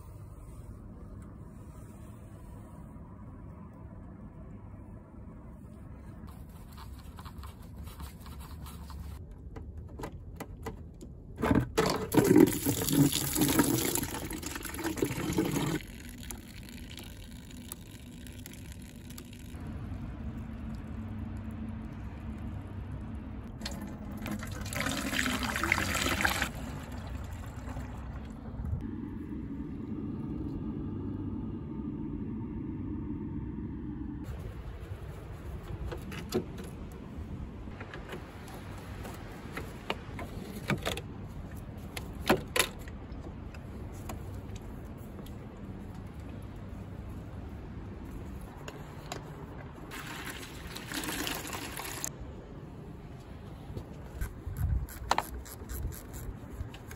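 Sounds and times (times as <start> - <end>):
low steady hum: 0.0 - 56.9
liquid gushing and splashing: 12.1 - 19.6, 23.5 - 28.4, 49.8 - 52.1
faint low hum: 26.6 - 36.1.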